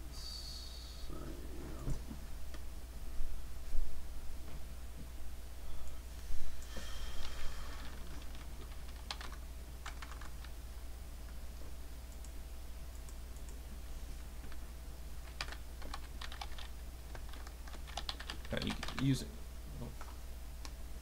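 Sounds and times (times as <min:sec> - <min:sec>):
steady low hum: 0:00.0 - 0:21.0
typing on a keyboard: 0:08.1 - 0:10.5, 0:15.3 - 0:19.1.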